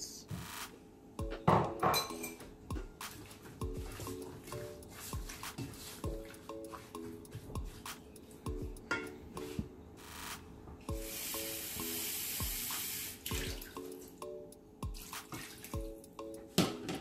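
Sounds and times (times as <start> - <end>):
light music with plucked notes: 1.2 - 10.0, 10.9 - 17.0
water tap running: 11.0 - 13.8.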